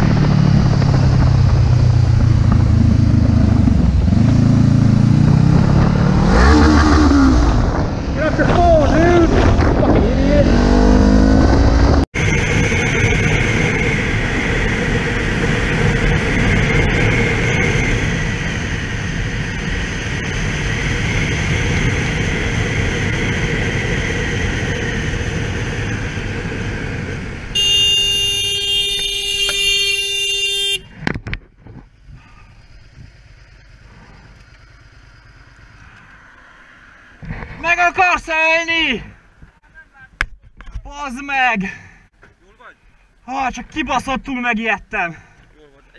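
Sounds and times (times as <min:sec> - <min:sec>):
wind noise: 0:00.0 - 0:28.2
motorcycle engine: 0:00.0 - 0:37.6
vehicle horn blast: 0:27.5 - 0:30.9.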